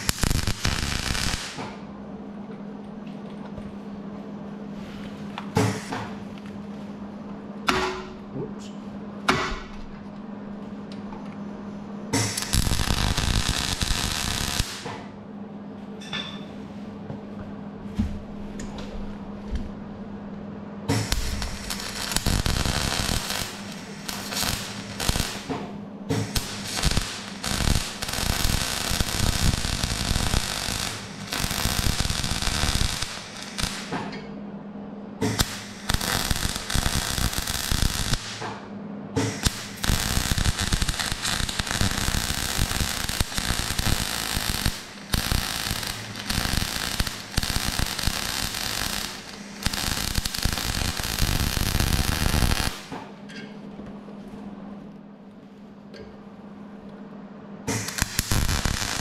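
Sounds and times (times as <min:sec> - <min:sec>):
welding arc crackling: 0:00.0 - 0:01.8, 0:12.1 - 0:15.0, 0:20.9 - 0:34.1, 0:35.2 - 0:38.5, 0:39.2 - 0:53.0, 0:57.7 - 0:59.0.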